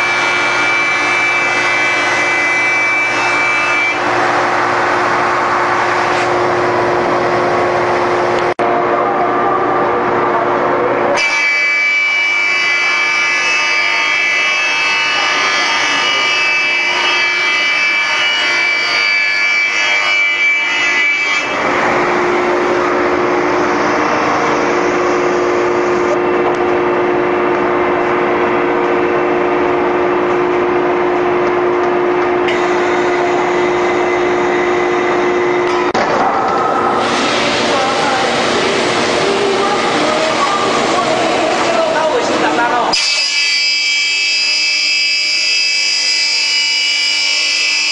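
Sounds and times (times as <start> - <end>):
belt sander running: 0.0 - 8.5, 21.4 - 47.9
high machine whine: 0.0 - 47.9.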